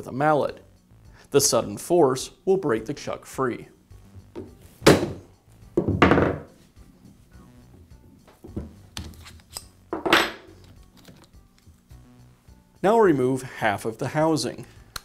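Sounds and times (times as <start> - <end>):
tool knocking on wooden bench: 4.4 - 6.5, 8.4 - 8.8.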